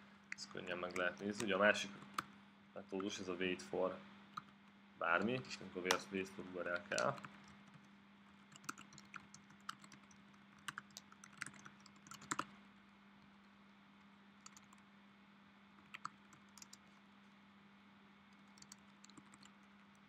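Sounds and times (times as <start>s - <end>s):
faint steady hum: 0.0s - 20.0s
typing on computer keyboard: 6.8s - 12.5s, 14.4s - 14.8s, 15.8s - 16.8s, 18.4s - 20.0s.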